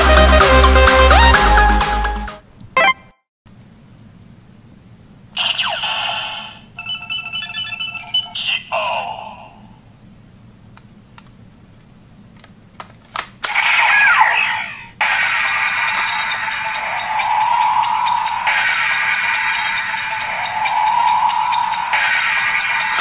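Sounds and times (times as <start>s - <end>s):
electronic beeps and falling tone: 2.8s - 3.2s, 15.5s - 23.0s
sharp plastic clicks: 12.3s - 13.8s
electronic toy bursts: 13.6s - 23.0s.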